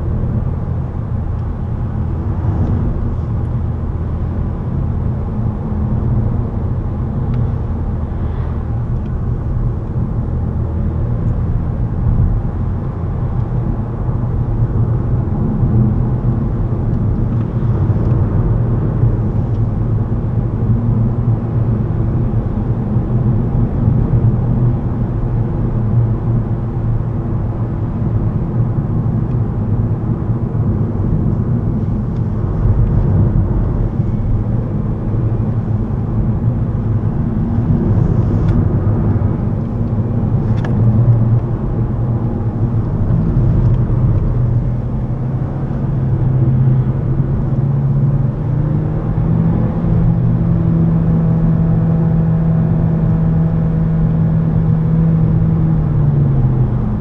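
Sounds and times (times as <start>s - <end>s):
tyre and road rumble: 28.9s - 57.0s.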